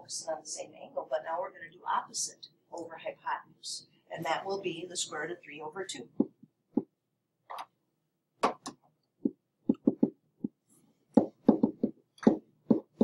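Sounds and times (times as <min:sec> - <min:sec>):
stylus tapping on a screen: 0:08.4 - 0:13.0.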